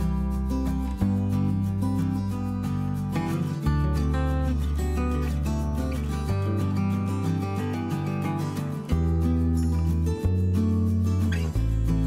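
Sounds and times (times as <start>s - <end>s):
acoustic guitar strumming: 0.0s - 12.0s
steady bass: 0.0s - 12.0s.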